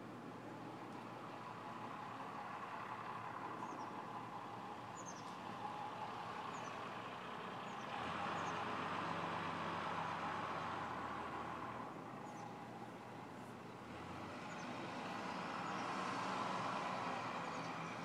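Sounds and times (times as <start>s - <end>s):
small birds chirping: 3.5s - 5.7s, 6.4s - 6.9s, 7.6s - 9.2s, 11.9s - 18.0s.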